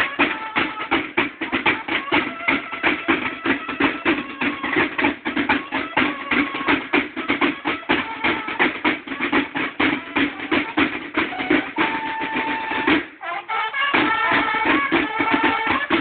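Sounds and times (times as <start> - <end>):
bugles sounding a fanfare: 0.0 - 16.0
field drums beating fast: 0.0 - 16.0.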